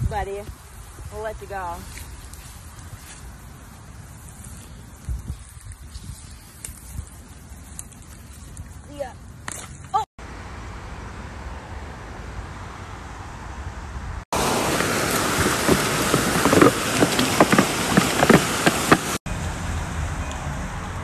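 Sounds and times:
low outdoor noise: 0.0s - 21.0s
fountain jets splashing into pool: 14.4s - 19.2s.

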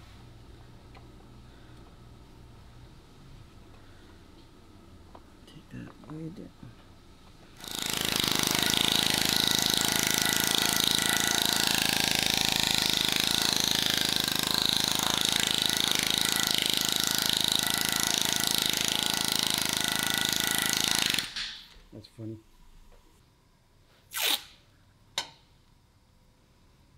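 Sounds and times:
power tool high-pitched whir: 7.6s - 21.4s.

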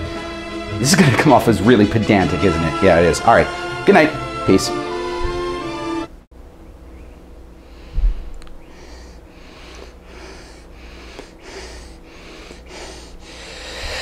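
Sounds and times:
low thump: 7.9s - 8.3s.

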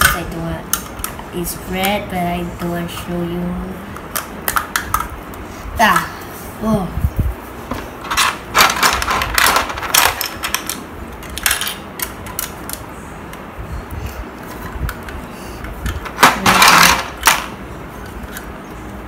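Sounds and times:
plastic bricks clicking and clattering: 8.0s - 12.8s, 14.5s - 18.5s.

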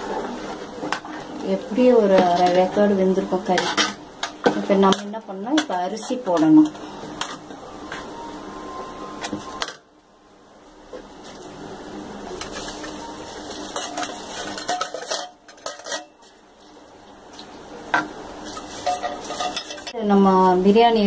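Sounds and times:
pot bubbling: 0.0s - 8.6s
steel vessels clinking on pot: 13.7s - 16.2s, 18.0s - 20.0s.

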